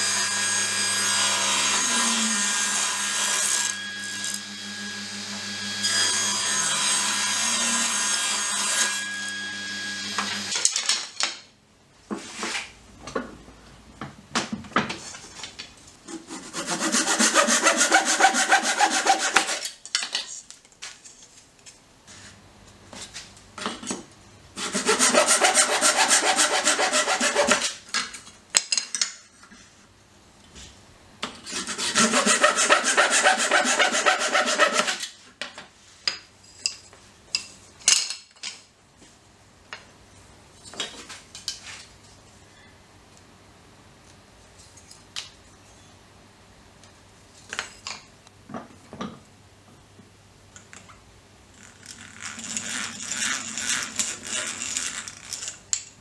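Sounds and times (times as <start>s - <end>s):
hand saw cutting wood: 16.1s - 19.8s, 24.6s - 27.8s, 31.5s - 35.2s, 52.2s - 55.5s.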